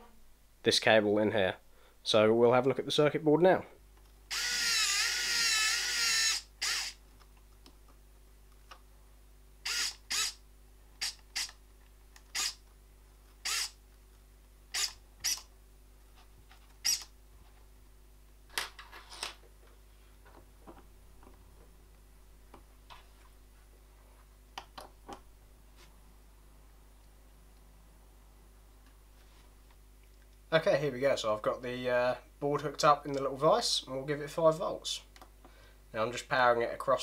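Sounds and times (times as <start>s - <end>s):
vise jaw squeaking: 4.3s - 7.0s, 9.7s - 10.4s, 11.0s - 11.6s, 12.3s - 12.6s, 13.4s - 13.8s, 14.7s - 15.5s, 16.8s - 17.1s.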